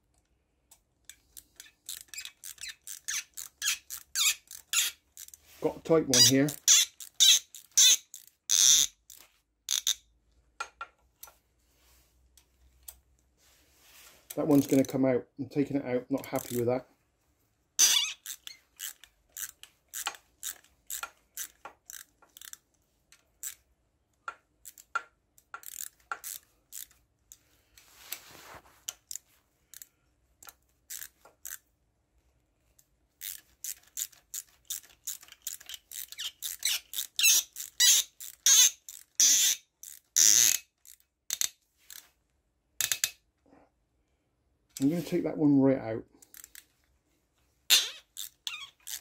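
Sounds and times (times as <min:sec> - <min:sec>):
socket wrench clicking: 0:00.7 - 0:05.4, 0:06.5 - 0:10.0, 0:17.8 - 0:22.6, 0:24.3 - 0:27.0, 0:33.2 - 0:42.0, 0:42.8 - 0:43.2, 0:47.7 - 0:49.0.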